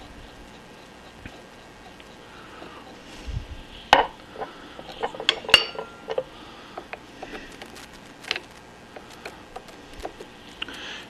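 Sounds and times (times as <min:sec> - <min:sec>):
metal tools clinking on metal: 0:04.4 - 0:06.3.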